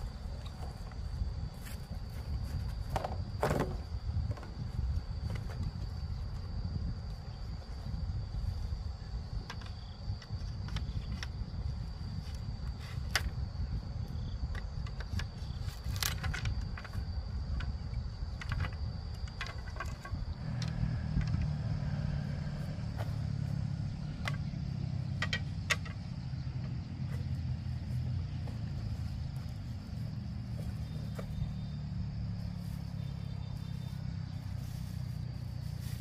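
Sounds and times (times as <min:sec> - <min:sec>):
clicks and rattles: 0:14.6 - 0:21.6, 0:25.2 - 0:26.8.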